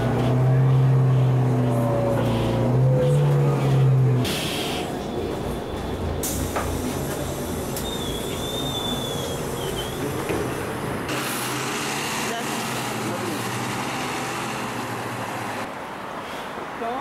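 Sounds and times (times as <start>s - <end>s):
bus engine low rumble: 0.0s - 15.7s
thin whistling tone: 7.8s - 10.0s.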